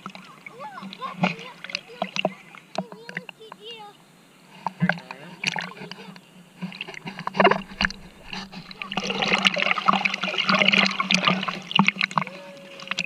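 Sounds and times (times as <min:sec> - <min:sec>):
sea water splashing: 0:00.0 - 0:03.7, 0:04.5 - 0:13.0
steady low hum: 0:03.9 - 0:12.1.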